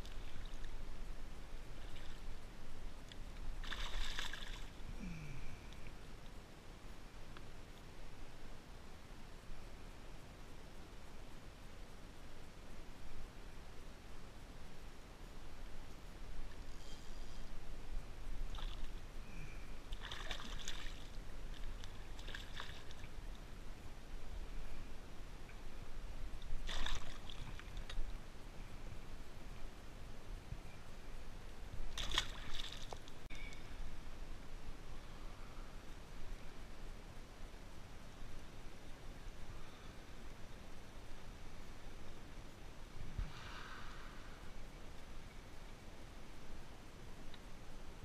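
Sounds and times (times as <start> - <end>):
low steady rumble: 0.0 - 48.0
paddle splashing through water: 3.6 - 4.7, 19.9 - 23.1, 26.6 - 27.9, 31.9 - 33.1
water trickling: 18.4 - 23.4.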